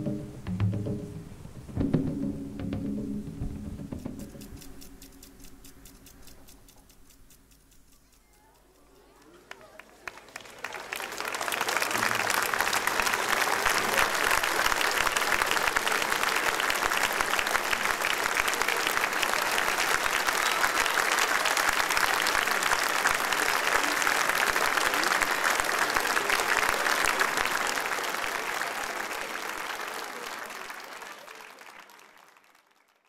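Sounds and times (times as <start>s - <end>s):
audience applauding: 9.0s - 33.0s.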